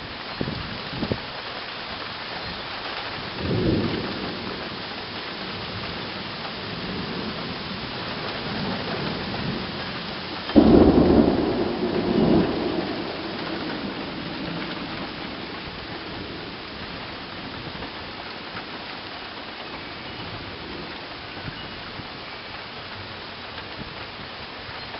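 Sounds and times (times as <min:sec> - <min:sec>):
steady rain: 0:00.0 - 0:24.9
thunder rumbling: 0:03.3 - 0:22.0.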